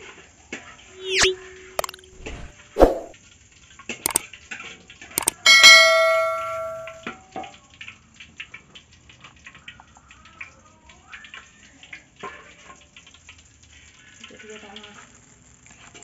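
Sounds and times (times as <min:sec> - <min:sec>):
bell-like chime: 0:05.2 - 0:07.0.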